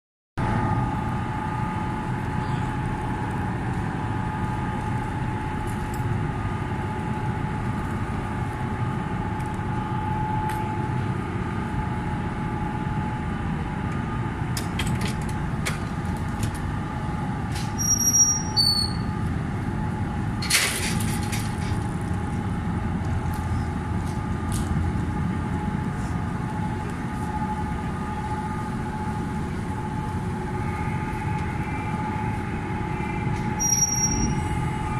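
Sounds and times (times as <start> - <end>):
ship machinery hum: 0.4 - 34.9
short high chirps: 33.6 - 34.4.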